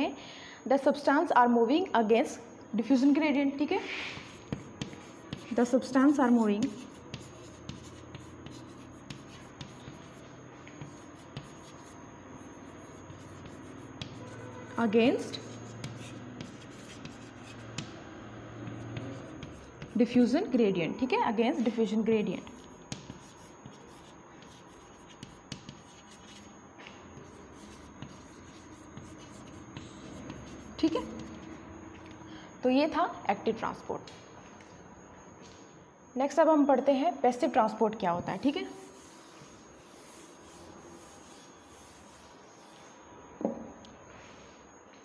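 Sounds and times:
chalk scratching on blackboard: 3.9s - 20.4s, 22.4s - 31.5s, 38.3s - 43.0s
chalk tapping: 4.1s - 20.4s, 22.4s - 31.5s, 38.5s - 42.9s.

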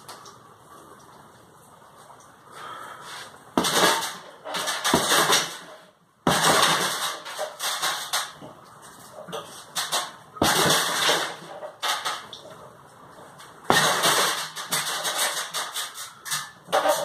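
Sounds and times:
punches hitting heavy bag: 3.6s - 5.6s, 6.2s - 6.9s, 13.7s - 14.2s.

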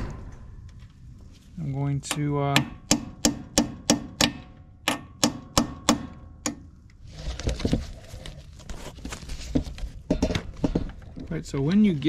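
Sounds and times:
hammer tapping metal: 2.0s - 6.6s
rustling: 7.0s - 12.0s.

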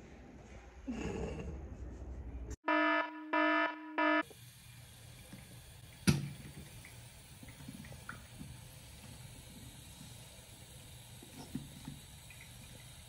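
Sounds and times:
buzzer-like beeps: 2.7s - 4.2s
plastic bottle rinsed by hand: 4.3s - 13.0s
tap running into a sink: 5.2s - 10.2s, 10.9s - 13.0s.

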